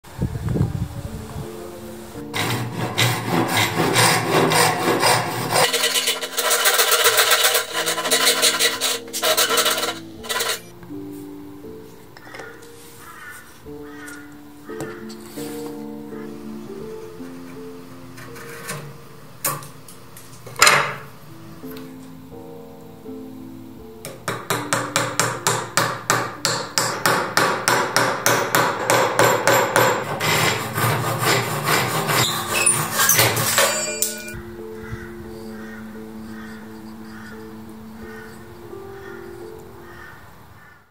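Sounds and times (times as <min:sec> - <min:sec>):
hand saw cutting wood: 0:02.3 - 0:10.6, 0:29.5 - 0:34.3
hammer striking wood: 0:24.1 - 0:30.6.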